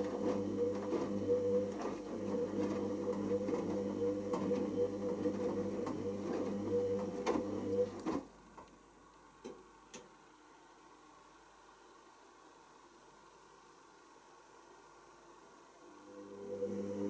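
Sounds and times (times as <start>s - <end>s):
washing machine drum motor humming: 0.0s - 8.3s, 16.0s - 17.0s.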